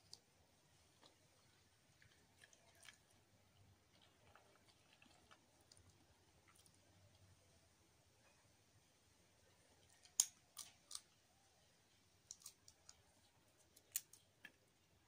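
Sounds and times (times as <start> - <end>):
peanut shells cracking: 9.9 - 11.2, 12.2 - 14.6.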